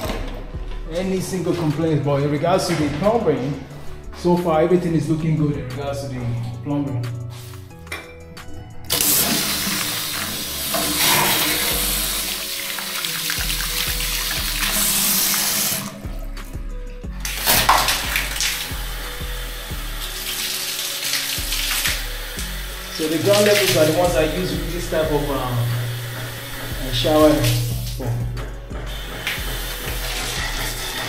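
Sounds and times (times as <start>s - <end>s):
background music: 0.0s - 31.0s
water running from tap: 8.9s - 16.2s, 17.2s - 31.0s.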